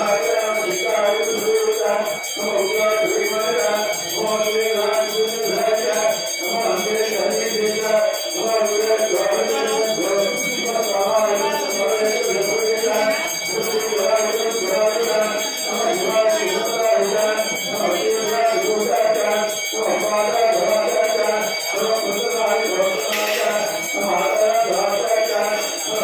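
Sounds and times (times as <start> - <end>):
bells ringing: 0.0 - 26.0
bright clash: 23.1 - 23.7.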